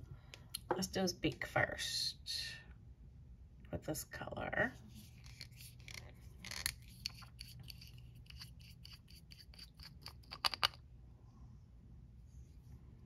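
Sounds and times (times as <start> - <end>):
bottle and brush scratches and clicks: 4.9 - 10.8.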